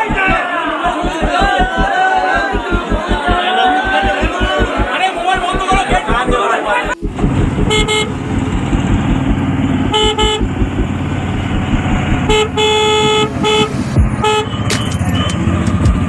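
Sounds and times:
engine and road rumble: 6.9s - 16.0s
vehicle horn honking: 7.0s - 8.2s, 9.8s - 10.6s, 12.2s - 15.6s.

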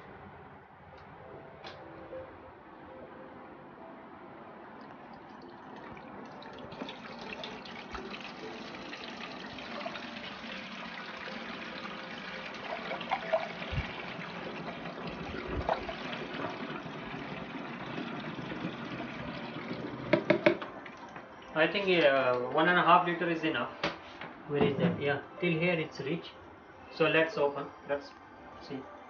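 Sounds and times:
water trickling into tank: 4.8s - 21.6s.

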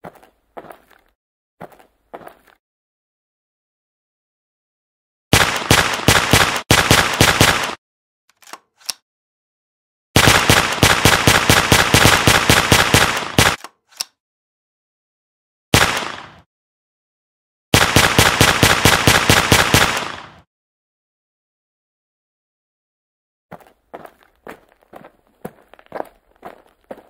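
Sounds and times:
automatic gunfire: 5.3s - 7.8s, 10.2s - 13.6s, 15.7s - 16.4s, 17.7s - 20.4s.

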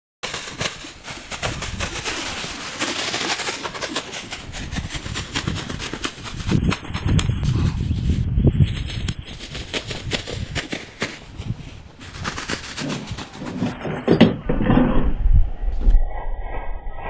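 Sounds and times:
steady rushing noise: 0.2s - 13.8s
horse hooves on sand: 0.2s - 14.1s.

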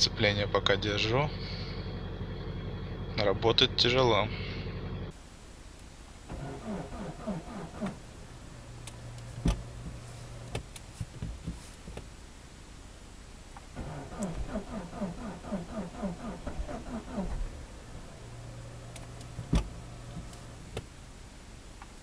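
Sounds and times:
car engine cranking: 0.0s - 5.1s, 6.3s - 11.0s, 13.6s - 21.0s
hum: 0.0s - 22.0s.

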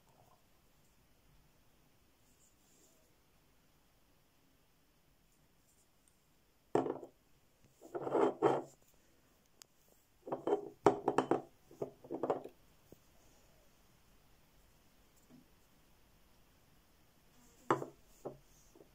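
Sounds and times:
glass bottle knocks and clatters: 6.8s - 7.1s, 10.3s - 12.5s, 17.7s - 18.0s.

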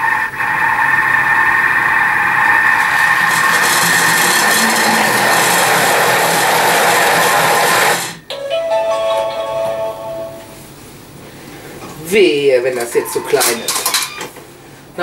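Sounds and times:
food processor motor whining: 0.0s - 8.2s.

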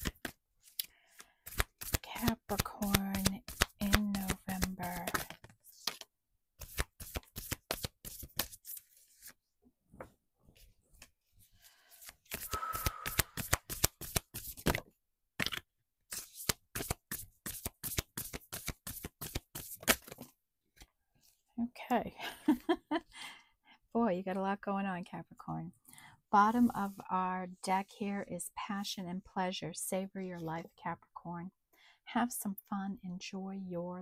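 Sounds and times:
cards being shuffled: 0.0s - 9.4s, 11.7s - 20.9s.

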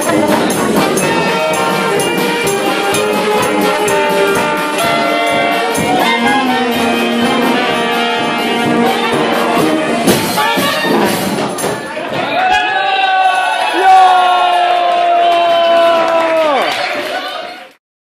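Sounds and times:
swing big band playing: 0.0s - 12.1s.

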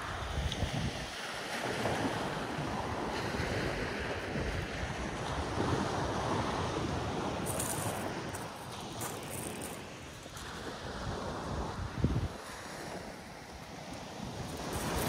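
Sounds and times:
waves washing onto pebbles: 0.0s - 15.0s
wind rumbling on microphone: 0.0s - 15.0s.

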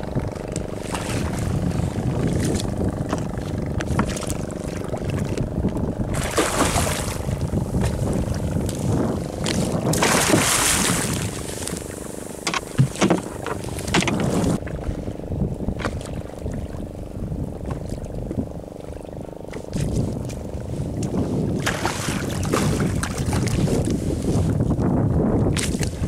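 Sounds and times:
boat engine running: 0.0s - 26.0s
water splashing along hull: 0.0s - 26.0s
wind on microphone: 0.0s - 26.0s
sharp knocks on boat: 2.3s - 4.4s, 9.4s - 14.8s.

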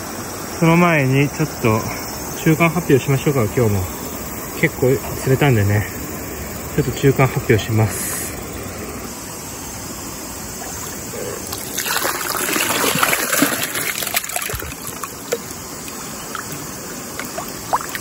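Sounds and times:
river water running: 0.0s - 18.0s
water splashing and trickling: 9.9s - 18.0s.

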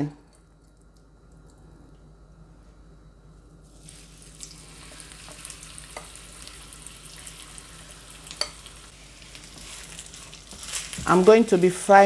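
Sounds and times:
chicken sizzling in oil: 3.6s - 12.0s.

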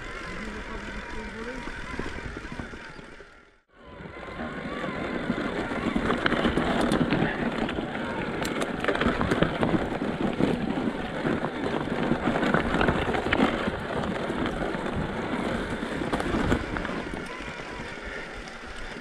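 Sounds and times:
wind buffeting microphone: 0.0s - 3.2s, 3.8s - 19.0s
bicycle tyres on stony trail: 0.0s - 19.0s
bike knocks and rattles: 4.6s - 17.8s.

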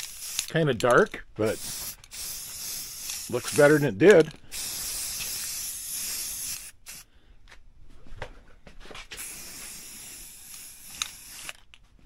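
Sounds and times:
spray paint can hissing: 0.0s - 0.5s, 1.4s - 3.9s, 4.5s - 7.0s, 9.2s - 11.6s.

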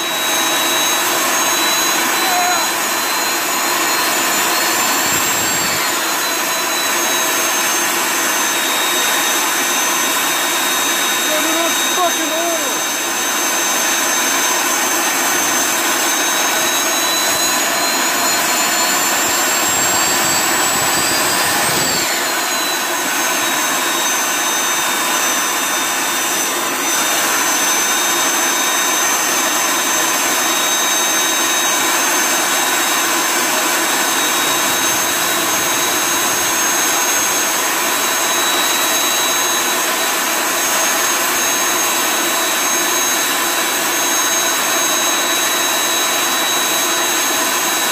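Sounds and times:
high turbo whine: 0.0s - 47.9s
burner jet-like roar: 32.0s - 38.1s.

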